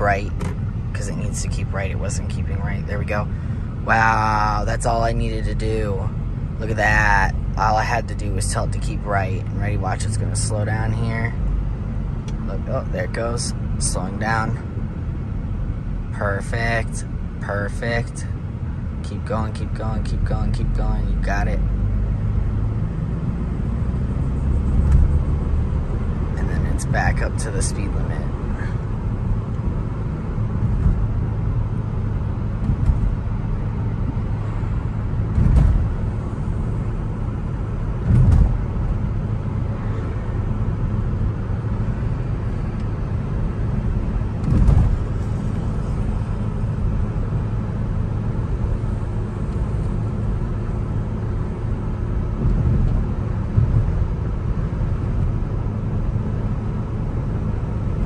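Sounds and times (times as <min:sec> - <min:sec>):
car road and engine hum: 0:00.0 - 0:58.0
short low thumps: 0:28.4 - 0:36.4, 0:37.9 - 0:39.1.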